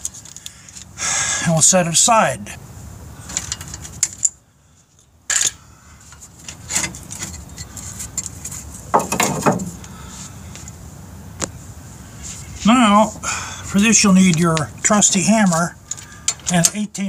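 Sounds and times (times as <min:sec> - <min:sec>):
metal clatter: 0:06.4 - 0:09.8.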